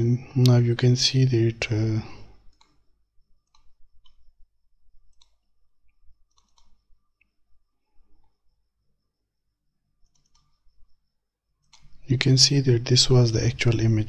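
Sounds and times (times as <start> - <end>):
computer mouse clicks: 2.4 - 4.4, 5.0 - 7.3, 10.0 - 10.8, 11.6 - 12.0.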